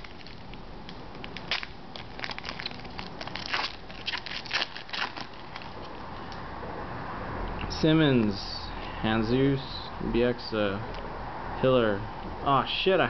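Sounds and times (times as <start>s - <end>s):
wrapper crinkling and tearing: 0.0s - 6.0s.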